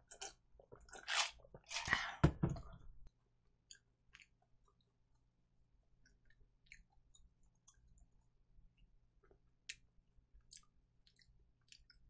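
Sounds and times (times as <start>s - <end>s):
mouth clicks and lip smacks chewing: 3.6s - 4.8s, 6.0s - 8.1s, 9.2s - 12.0s.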